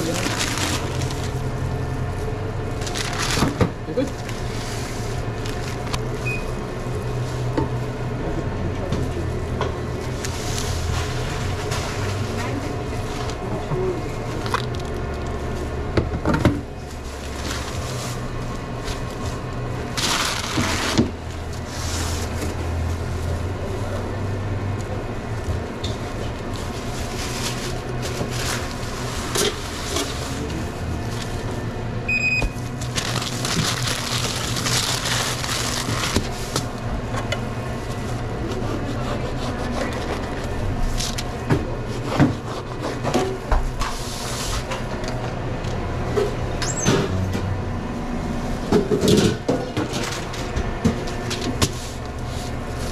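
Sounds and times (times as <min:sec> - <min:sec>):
food handling rustles and scrapes: 0:00.0 - 0:01.5, 0:02.7 - 0:07.5, 0:10.0 - 0:15.8, 0:16.8 - 0:24.0, 0:25.9 - 0:31.6, 0:32.7 - 0:36.8, 0:37.8 - 0:45.0, 0:49.8 - 0:52.9
steady low hum: 0:00.0 - 0:52.9
short electronic beep: 0:32.1 - 0:32.6.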